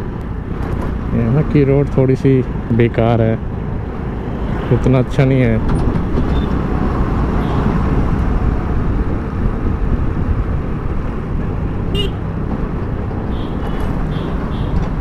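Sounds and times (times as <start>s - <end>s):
road rumble: 0.0s - 15.0s
wind: 0.0s - 15.0s.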